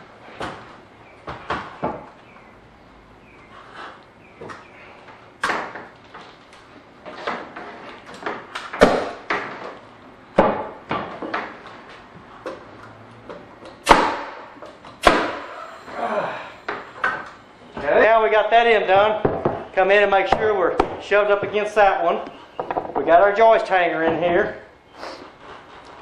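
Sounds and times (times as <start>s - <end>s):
nail gun shots: 13.8s - 15.5s
lumber knocking: 19.0s - 19.7s, 22.6s - 23.2s.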